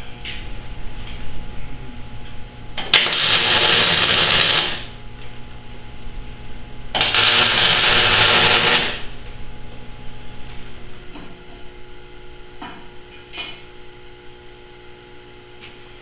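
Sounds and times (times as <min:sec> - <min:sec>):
electric arc welding: 0:02.8 - 0:05.0, 0:07.0 - 0:09.2.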